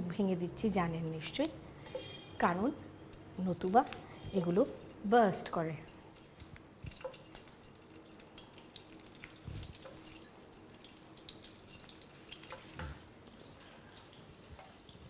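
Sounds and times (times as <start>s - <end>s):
oil spattering and crackling: 6.1s - 15.0s.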